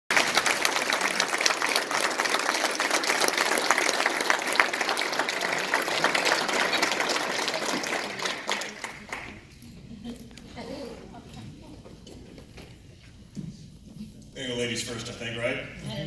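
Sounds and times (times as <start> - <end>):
audience applauding: 0.1 - 9.5.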